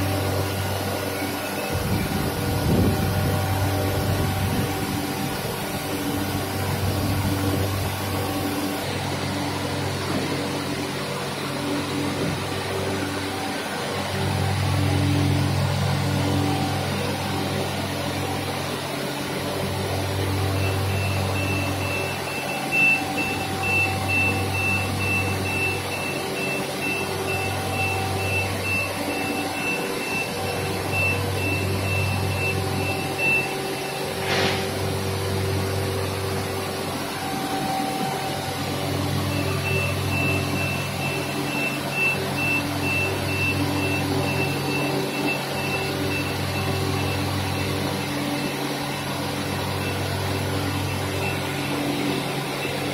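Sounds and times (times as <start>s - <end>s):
machine hum with low rumble: 0.0s - 52.9s
fast high repeated beep: 20.6s - 34.0s, 39.3s - 47.8s
short hiss: 34.2s - 34.7s.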